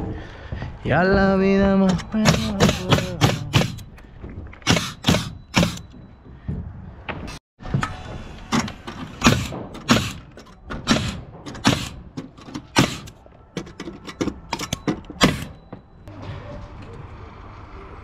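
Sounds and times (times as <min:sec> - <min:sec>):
nail gun firing into wood: 0:02.2 - 0:03.8, 0:04.6 - 0:05.8, 0:09.2 - 0:13.2.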